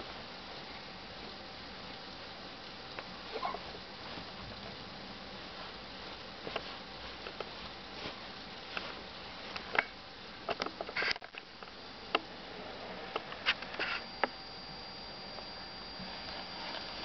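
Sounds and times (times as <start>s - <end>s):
nappy rustling: 3.1s - 9.7s.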